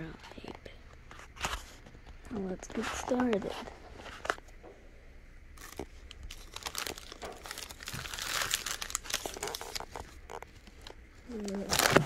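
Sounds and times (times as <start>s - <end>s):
plastic wrappers crinkling: 5.6s - 12.0s.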